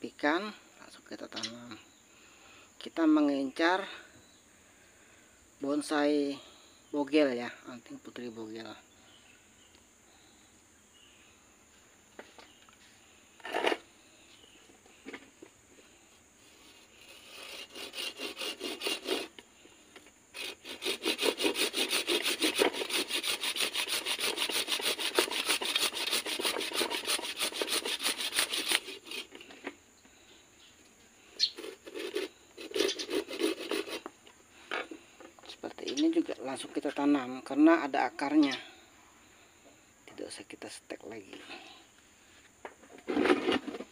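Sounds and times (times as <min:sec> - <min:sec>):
hand saw cutting a stem: 0:16.6 - 0:19.4, 0:20.3 - 0:29.4, 0:31.4 - 0:34.1.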